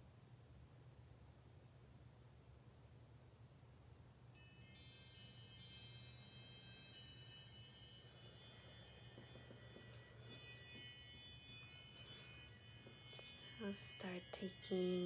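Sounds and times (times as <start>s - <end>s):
chimes ringing: 4.4s - 15.0s.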